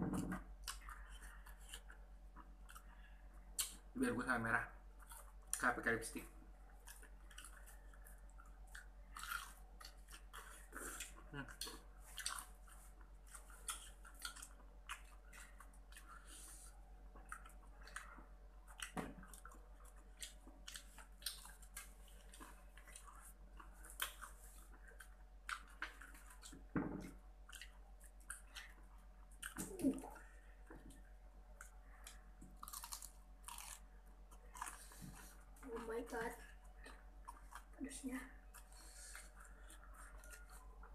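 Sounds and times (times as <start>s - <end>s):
wet chewing with crunches: 0.4s - 3.9s, 6.4s - 40.9s.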